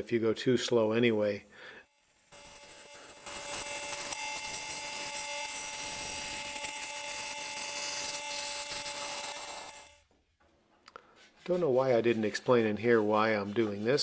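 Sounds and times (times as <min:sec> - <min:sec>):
scroll saw cutting metal: 0:01.9 - 0:10.0.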